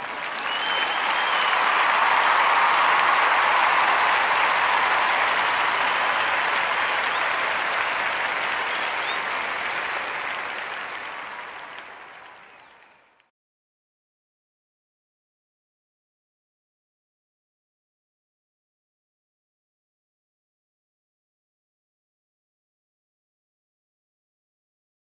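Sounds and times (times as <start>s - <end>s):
crowd applauding: 0.0s - 13.3s.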